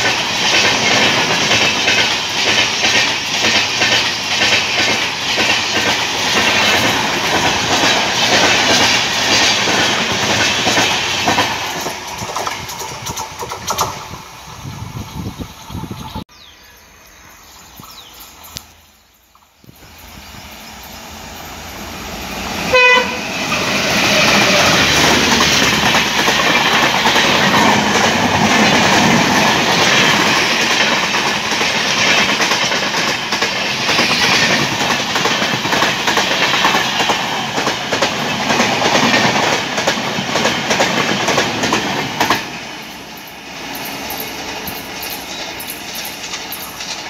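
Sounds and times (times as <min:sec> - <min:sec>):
train coaches rattling past: 0:00.0 - 0:47.0
train horn blast: 0:22.7 - 0:24.8.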